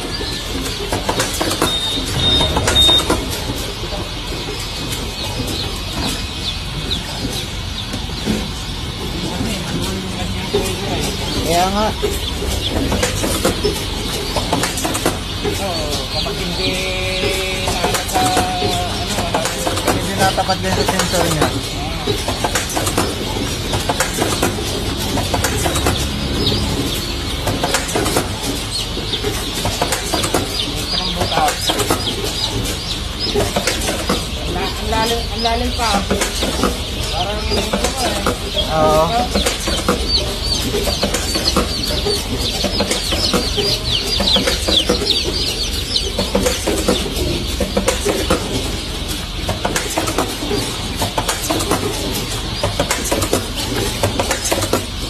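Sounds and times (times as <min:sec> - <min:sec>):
chicks peeping: 0:00.0 - 0:55.0
machine humming: 0:00.0 - 0:55.0
low steady rumble: 0:21.6 - 0:29.8.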